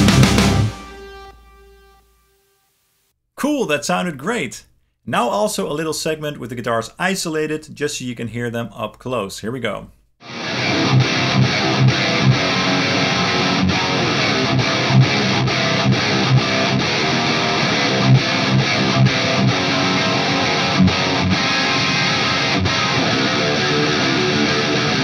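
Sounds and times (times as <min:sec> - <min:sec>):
distorted electric guitar riff: 0:00.0 - 0:02.4, 0:10.2 - 0:25.0.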